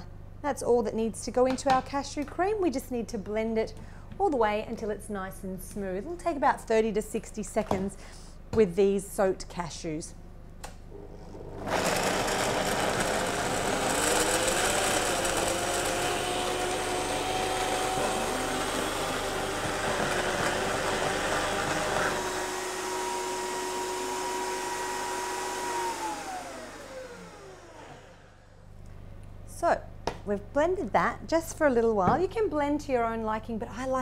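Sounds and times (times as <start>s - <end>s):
blender motor whining: 10.9s - 28.6s.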